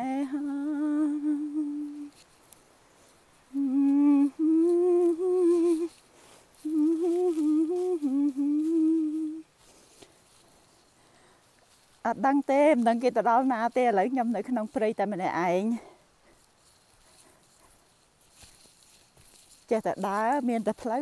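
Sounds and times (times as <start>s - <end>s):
woman humming: 0.0s - 2.2s, 3.5s - 6.0s, 6.6s - 9.6s.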